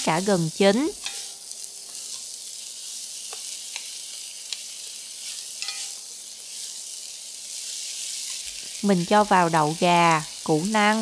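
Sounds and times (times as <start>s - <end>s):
vegetables sizzling in a wok: 0.0s - 11.0s
spatula tapping and scraping pan: 0.9s - 2.3s, 3.3s - 4.6s, 5.3s - 6.0s.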